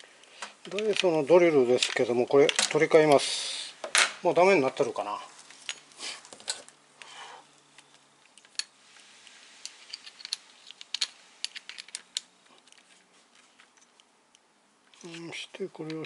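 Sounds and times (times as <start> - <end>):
small metal parts clicking: 0.2 - 3.2, 7.8 - 8.7, 9.6 - 16.0.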